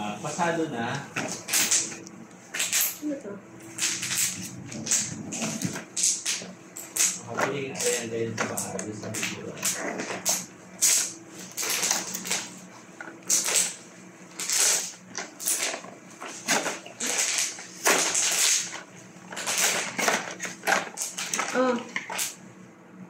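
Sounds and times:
cardboard packaging scraping and crinkling: 13.2 - 22.3.

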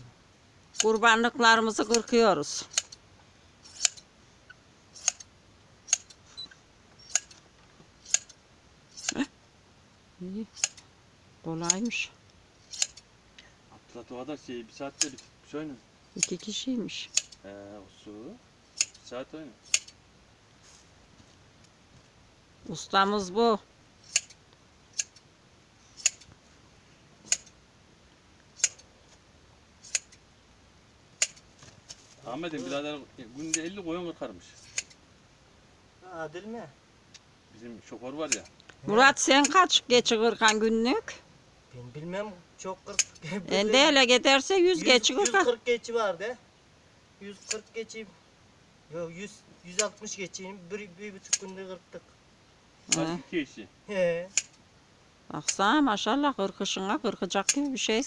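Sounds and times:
hand shears snipping hair: 0.7 - 1.1, 1.8 - 3.0, 3.6 - 4.1, 4.9 - 5.3, 5.9 - 7.4, 8.0 - 9.3, 10.5 - 10.8, 11.6 - 12.0, 12.6 - 13.0, 14.9 - 15.3, 16.2 - 17.4, 18.8 - 20.0, 24.0 - 25.2, 25.9 - 26.3, 27.2 - 27.6, 28.6 - 28.9, 29.8 - 30.2, 31.2 - 33.8, 34.5 - 35.0, 38.2 - 38.5, 39.2 - 39.7, 40.4 - 40.7, 42.9 - 43.3, 44.8 - 45.5, 47.3 - 47.8, 49.7 - 50.0, 51.2 - 51.6, 52.8 - 53.1, 54.3 - 54.6, 57.4 - 57.8.

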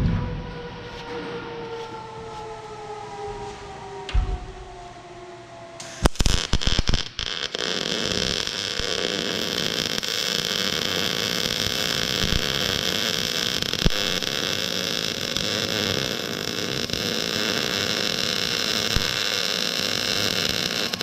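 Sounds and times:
arc welding crackling hiss: 5.8 - 21.0
welding arc pops and sputters: 5.8 - 21.0.

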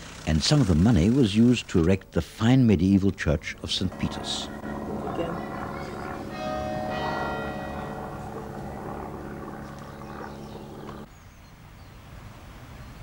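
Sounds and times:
faint outdoor background: 0.0 - 13.0
church bells ringing: 3.8 - 11.1.

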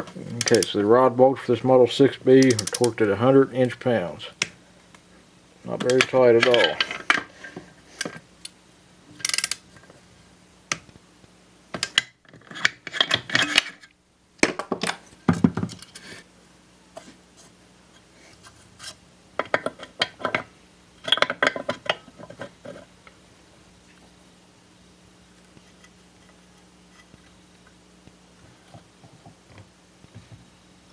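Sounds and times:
metal parts and tool clinking: 5.8 - 7.3, 11.8 - 13.9.

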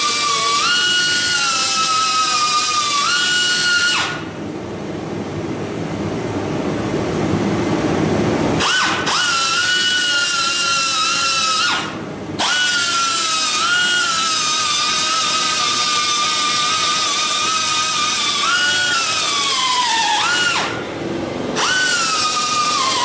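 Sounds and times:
cutoff tool grinding steel: 8.6 - 20.8, 21.6 - 23.0.

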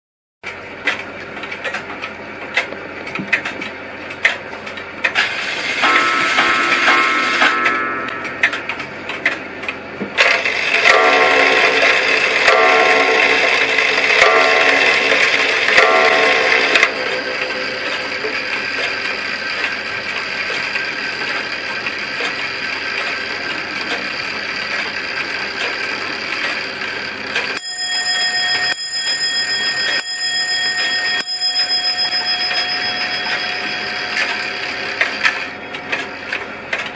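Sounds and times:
clock mechanism whirring: 0.4 - 36.9
hammer striking clock bell: 5.7 - 9.4, 10.2 - 19.9, 27.3 - 36.9.

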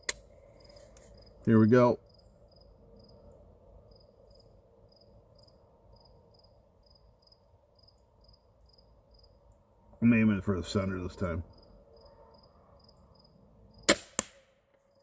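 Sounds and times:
cricket chirping: 0.4 - 1.4, 2.0 - 9.8, 11.4 - 13.9.

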